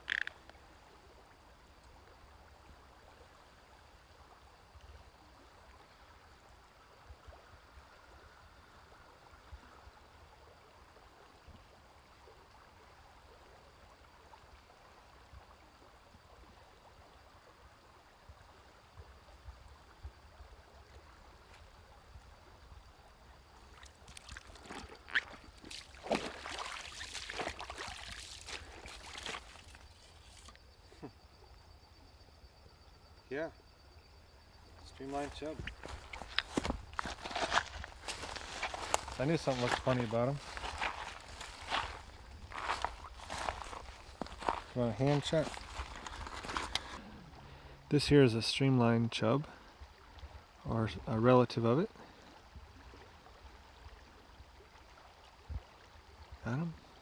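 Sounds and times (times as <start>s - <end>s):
river flowing: 0.0s - 31.0s, 34.2s - 57.0s
person wading through water: 23.5s - 30.6s, 35.0s - 47.9s.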